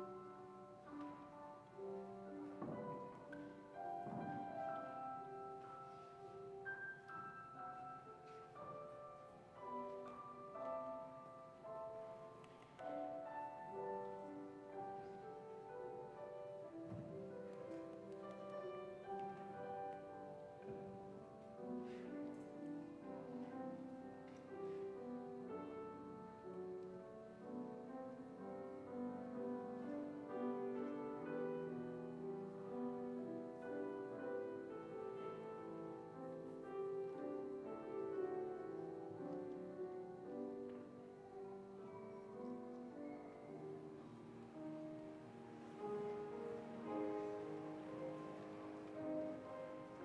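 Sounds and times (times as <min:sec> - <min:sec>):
slow piano music: 0:00.0 - 0:50.0.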